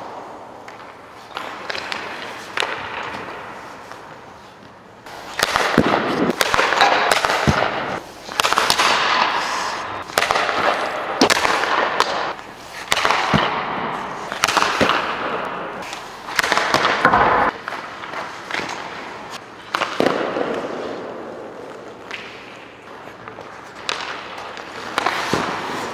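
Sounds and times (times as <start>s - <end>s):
hockey pucks cracking off sticks: 0.0s - 25.9s
skate blades scraping ice: 0.0s - 25.9s.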